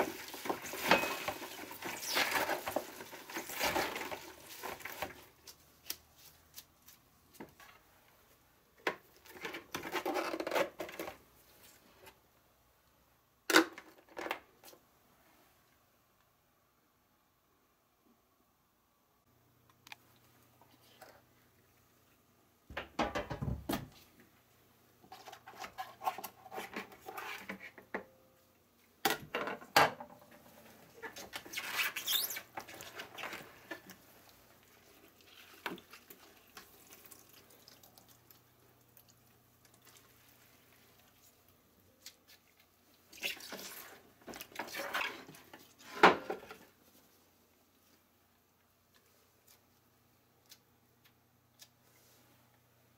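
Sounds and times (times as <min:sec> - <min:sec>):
brine dripping: 0:34.6 - 0:43.9.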